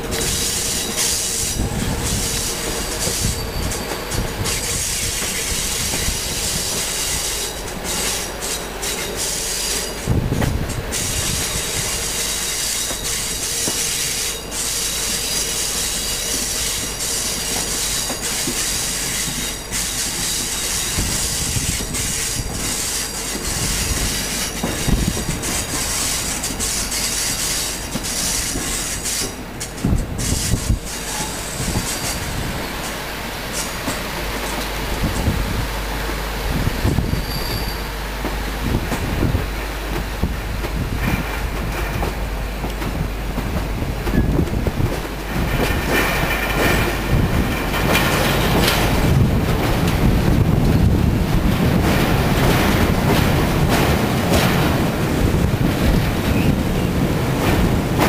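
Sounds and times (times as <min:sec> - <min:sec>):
train wheel and rail noise: 0:00.0 - 0:58.0
wheels squealing: 0:37.0 - 0:37.9.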